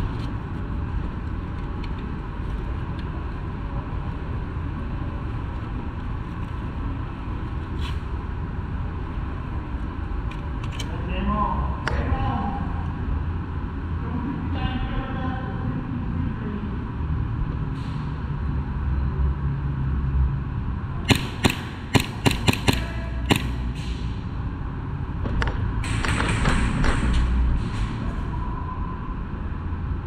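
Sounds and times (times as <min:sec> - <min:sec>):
airsoft pistol shots: 0:21.1 - 0:24.0.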